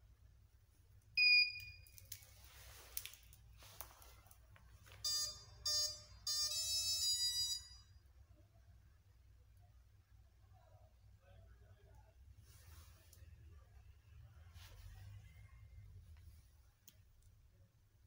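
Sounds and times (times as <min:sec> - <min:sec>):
loud high beep: 0:05.1 - 0:07.9.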